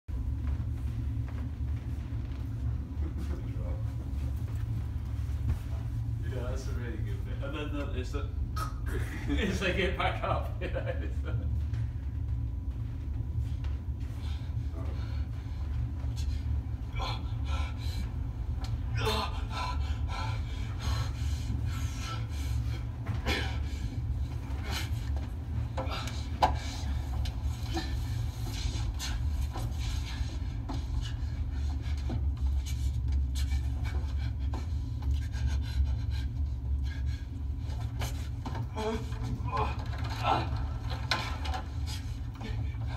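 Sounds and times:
breathing: 0:14.0 - 0:18.1
rustling and scraping: 0:37.5 - 0:42.9.

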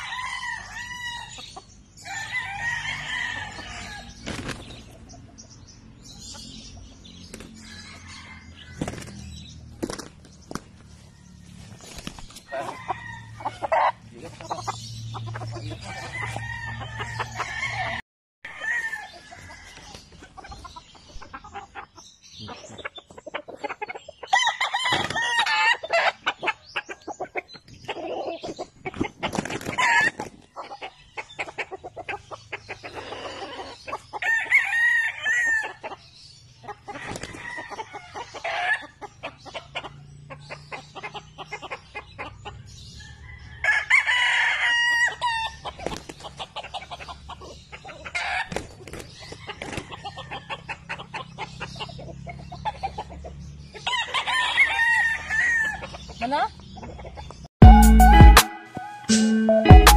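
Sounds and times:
roosters crowing: 0:00.0 - 0:56.3
wings flapping and scuffling: 0:04.1 - 0:05.1, 0:07.2 - 0:07.9, 0:08.7 - 0:12.6, 0:28.4 - 0:30.5, 0:37.0 - 0:37.5, 0:45.7 - 0:46.4, 0:48.3 - 0:50.0
chicken clucking: 0:11.9 - 0:18.0, 0:19.2 - 0:42.7, 0:44.9 - 0:57.4.

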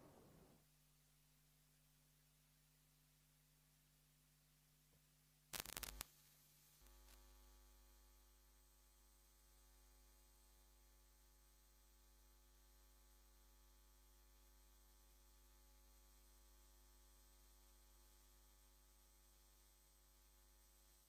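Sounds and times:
faint electrical mains hum: 0:00.0 - 0:21.0
short crackle: 0:05.5 - 0:06.2
steady electrical buzz: 0:05.5 - 0:21.0.

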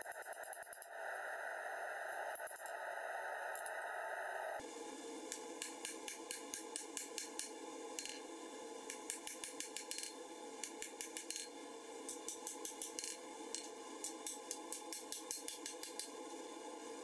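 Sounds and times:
hammer striking metal on anvil: 0:08.9 - 0:11.5.

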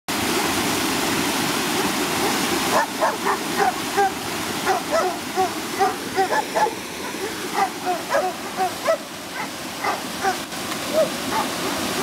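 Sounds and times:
water pouring over rocks: 0:00.1 - 0:12.0
dogs barking: 0:02.7 - 0:12.0.

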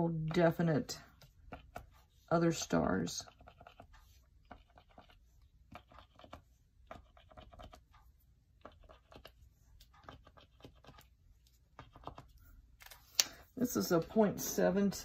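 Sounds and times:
paint pen tapping on paper: 0:01.2 - 0:02.0.

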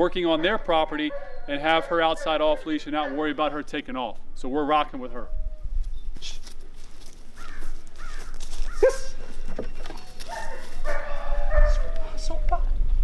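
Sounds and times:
dog barking and yelping: 0:00.3 - 0:03.6, 0:08.7 - 0:09.3, 0:10.2 - 0:12.2.

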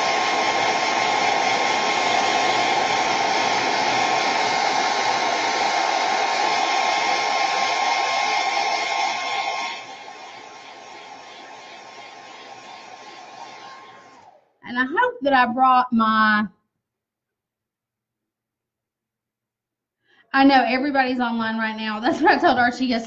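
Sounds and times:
hot-air blower running: 0:00.0 - 0:14.9.

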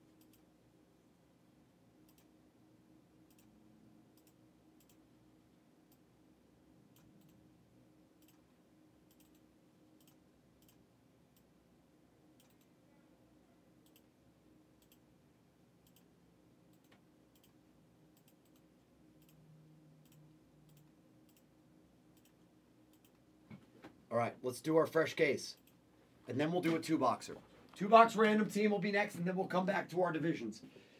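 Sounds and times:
low steady hum: 0:00.0 - 0:30.9
computer mouse clicks: 0:00.2 - 0:00.5, 0:02.0 - 0:02.3, 0:03.3 - 0:03.5, 0:04.2 - 0:05.0, 0:06.9 - 0:07.4, 0:08.2 - 0:08.5, 0:09.1 - 0:11.5, 0:12.4 - 0:12.7, 0:13.8 - 0:14.1, 0:14.8 - 0:15.0, 0:15.8 - 0:16.1, 0:16.7 - 0:19.4, 0:20.0 - 0:21.5, 0:22.1 - 0:23.2.

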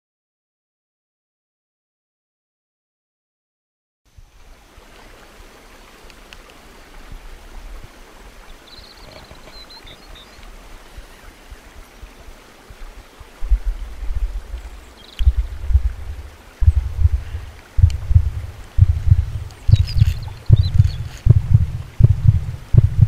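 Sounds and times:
steady hiss: 0:04.1 - 0:23.0
wind buffeting microphone: 0:13.4 - 0:23.0
faint high chirping: 0:19.4 - 0:21.3.

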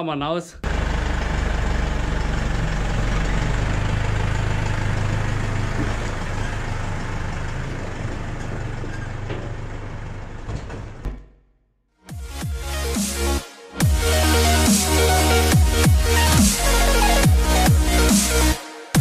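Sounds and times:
tractor diesel engine idling: 0:00.6 - 0:11.4.

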